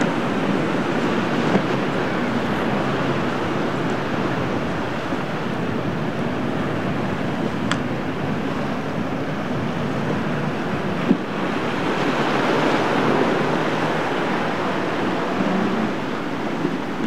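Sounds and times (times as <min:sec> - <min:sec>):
waves and surf breaking: 0:00.0 - 0:17.0
wind buffeting microphone: 0:00.0 - 0:17.0.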